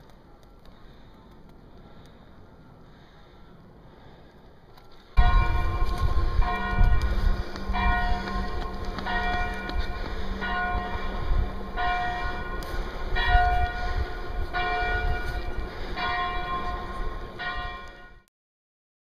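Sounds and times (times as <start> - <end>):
church bell ringing: 5.2 - 18.3.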